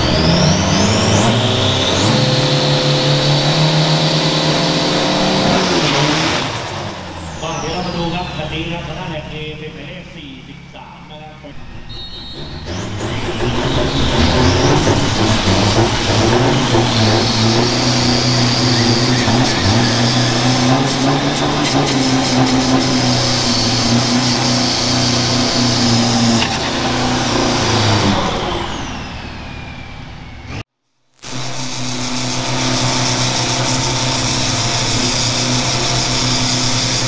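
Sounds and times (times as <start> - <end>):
truck engine at high revs: 0.0 - 37.0
tyres spinning with harsh hiss: 2.3 - 29.1.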